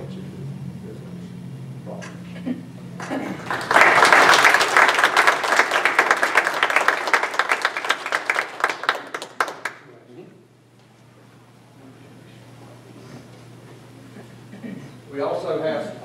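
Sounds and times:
people applauding: 3.0s - 10.0s.

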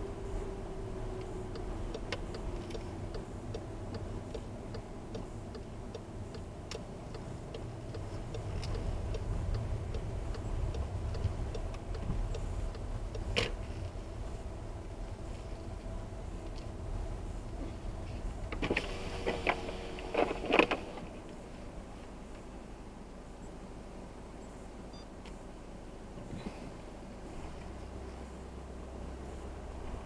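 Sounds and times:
turn signal ticking: 0.0s - 21.4s
car rumbling on wet road: 0.0s - 23.4s, 25.6s - 30.0s.

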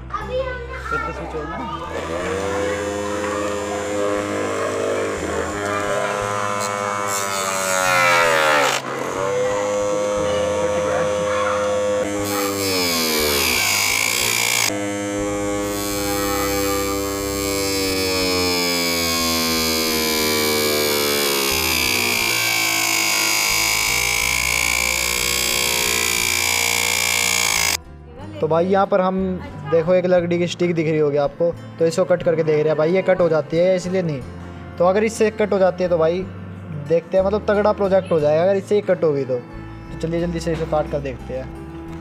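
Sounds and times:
electric motor whining: 1.8s - 27.8s.

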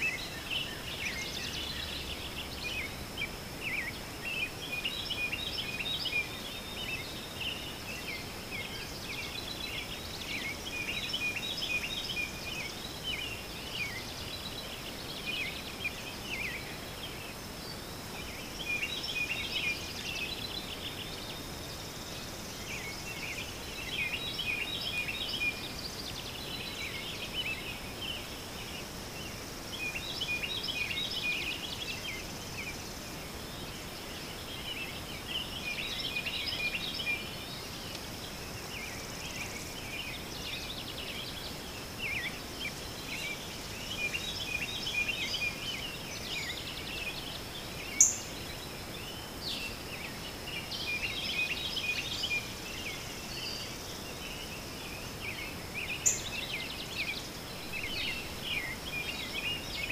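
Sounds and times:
background hiss: 0.0s - 59.9s
birds chirping: 0.0s - 59.9s.

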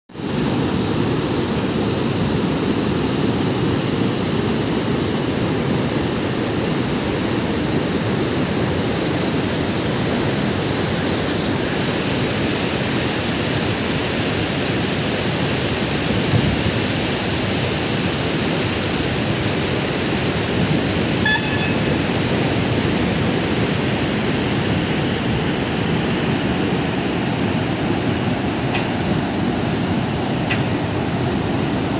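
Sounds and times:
rushing floodwater: 0.2s - 21.2s, 21.9s - 31.9s
high-pitched chirp: 21.3s - 22.2s.

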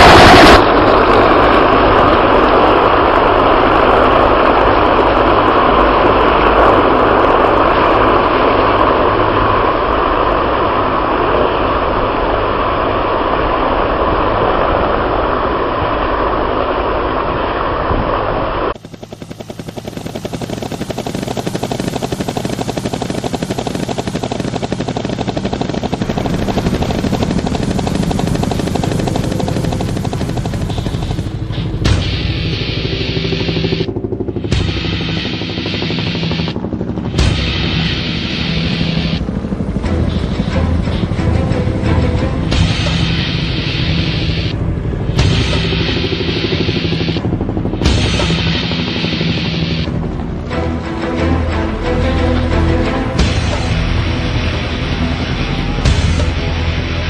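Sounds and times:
helicopters flying over: 0.0s - 57.0s
fast even pulsing: 18.6s - 57.0s.

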